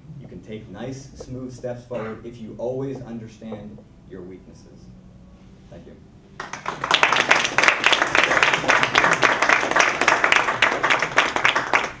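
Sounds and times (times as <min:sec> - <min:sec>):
audience applause: 0:06.4 - 0:12.0.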